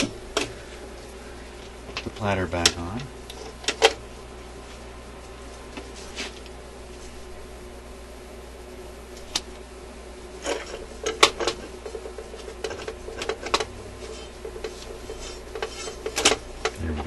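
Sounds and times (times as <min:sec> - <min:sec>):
faint steady hum: 0:00.0 - 0:17.0
record player platter clicks and knocks: 0:10.5 - 0:13.7.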